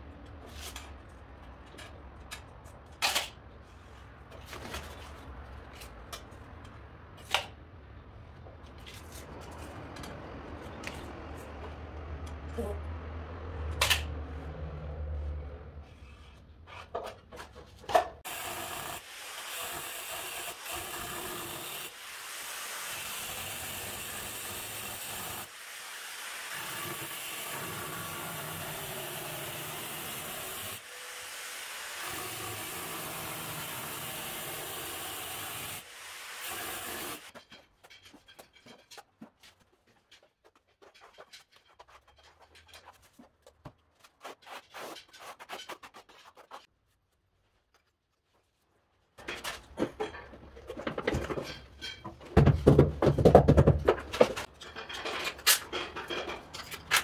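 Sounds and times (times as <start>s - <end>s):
angle grinder cutting tile: 18.2s - 37.3s.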